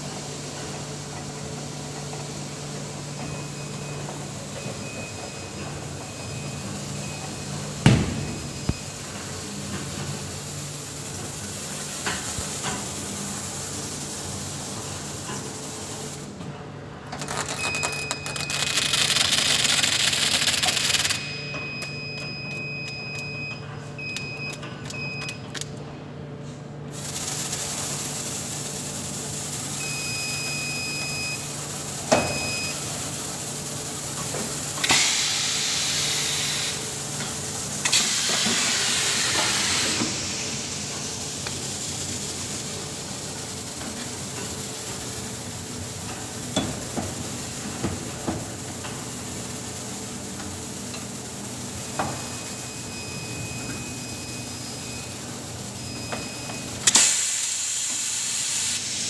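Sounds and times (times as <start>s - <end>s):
machine humming: 0.0s - 15.3s.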